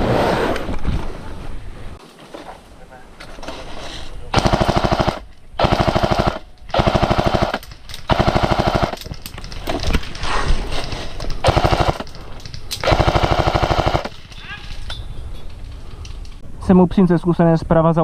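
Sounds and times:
airsoft machine gun bursts: 0:04.4 - 0:09.0, 0:11.4 - 0:12.1, 0:12.8 - 0:14.1.

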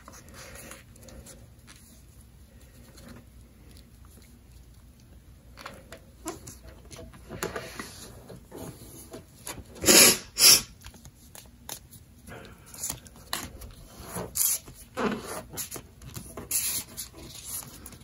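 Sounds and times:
paper rustling and crinkling: 0:12.7 - 0:18.0.

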